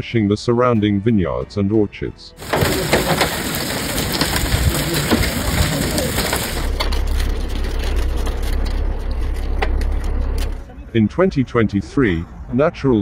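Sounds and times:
low rumble: 0:02.4 - 0:10.7
vehicle tyre and road noise: 0:02.4 - 0:13.0.

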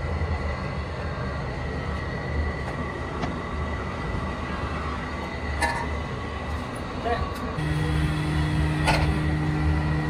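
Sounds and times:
wood lathe motor hum and whine: 0:07.6 - 0:10.0.

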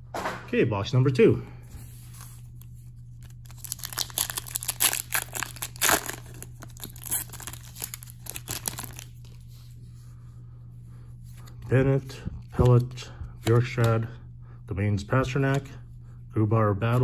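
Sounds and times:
foil wrapper crinkling: 0:03.2 - 0:09.3
wrapper tearing: 0:03.2 - 0:09.4.

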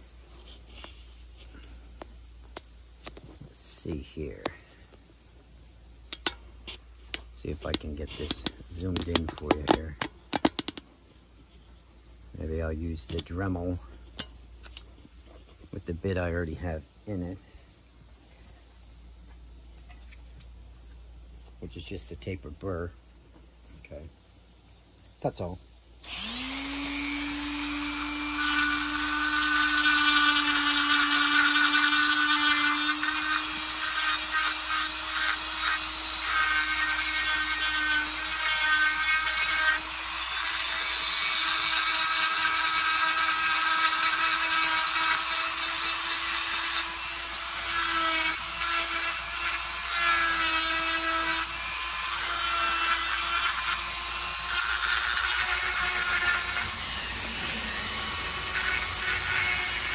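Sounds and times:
burr grinding into wood: 0:26.0 - 0:59.9
rotary tool motor whining: 0:26.0 - 0:59.9.

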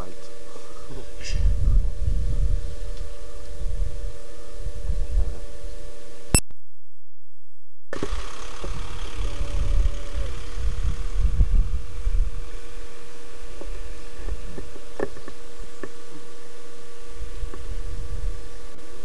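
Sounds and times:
low outdoor rumble: 0:08.0 - 0:19.0
faint steady hum: 0:08.6 - 0:19.0.

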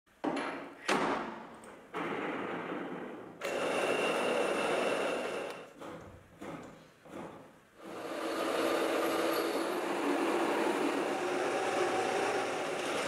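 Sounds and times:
metal lathe running: 0:07.8 - 0:13.0.

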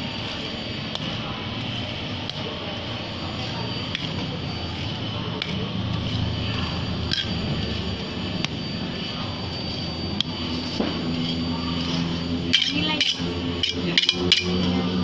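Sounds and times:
steady mechanical hum: 0:00.0 - 0:15.0
metal spatula scraping steel plate: 0:00.2 - 0:07.8, 0:09.0 - 0:14.8
spatula tapping on metal: 0:12.5 - 0:14.6.

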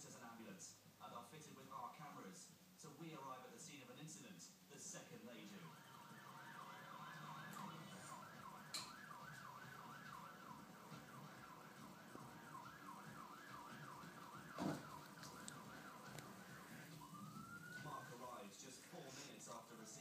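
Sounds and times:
siren yelp from television: 0:05.5 - 0:18.4
thump: 0:14.6 - 0:15.0.

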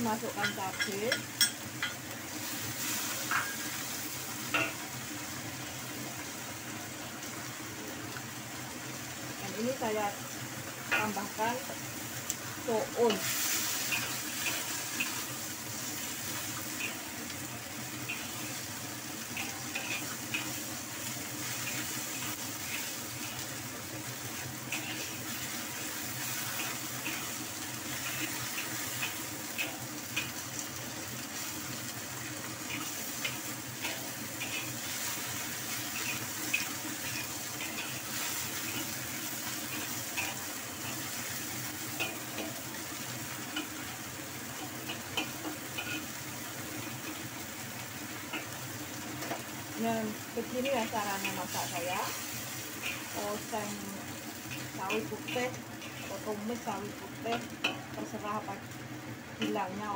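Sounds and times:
vegetables sizzling in a wok: 0:00.0 - 0:59.9
metal spatula scraping wok: 0:19.3 - 0:20.6, 0:24.3 - 0:30.4, 0:32.6 - 0:41.1.

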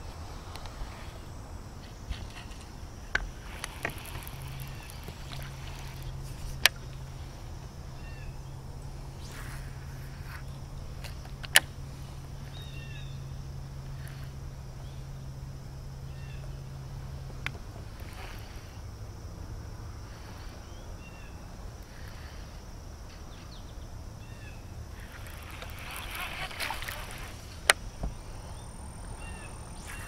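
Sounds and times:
electric trolling motor humming: 0:00.0 - 0:30.0
faint bird chirps: 0:07.9 - 0:10.6, 0:12.4 - 0:13.4, 0:20.6 - 0:21.5, 0:27.9 - 0:30.0.

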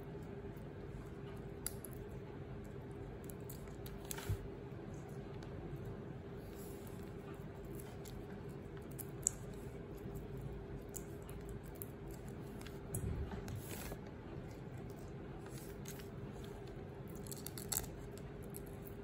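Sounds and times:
steady low hum: 0:00.0 - 0:19.0
shrimp shells clicking and tearing: 0:17.1 - 0:19.0.

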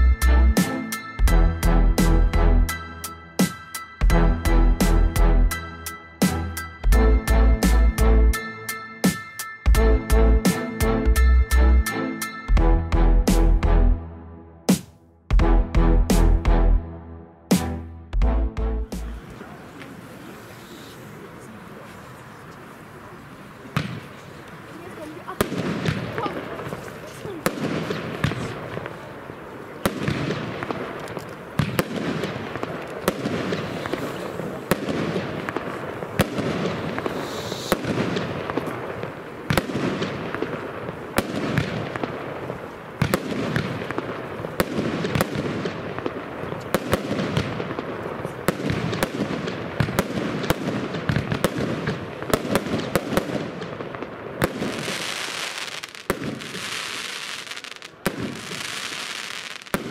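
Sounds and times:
fireworks launching and bursting: 0:00.0 - 0:01.2, 0:14.6 - 0:15.4, 0:17.5 - 0:17.9, 0:18.8 - 0:59.9
dense high firework hiss: 0:30.7 - 0:44.6, 0:54.6 - 0:59.9.

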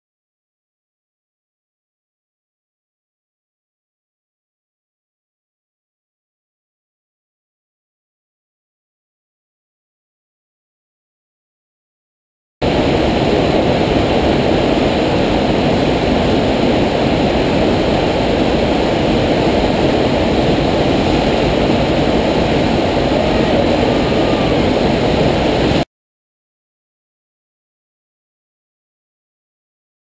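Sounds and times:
water rushing up a ride surface: 0:12.6 - 0:25.9.

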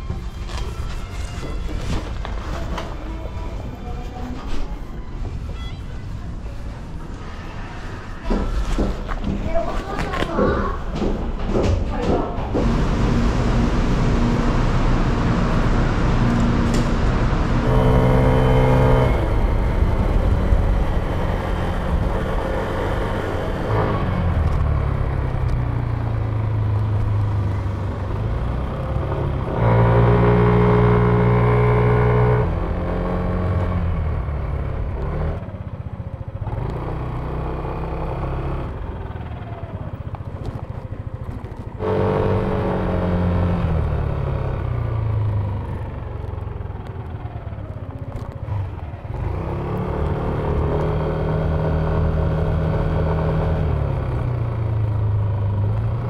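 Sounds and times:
road and wind noise: 0:00.0 - 0:56.0
scooter engine accelerating: 0:12.6 - 0:56.0.

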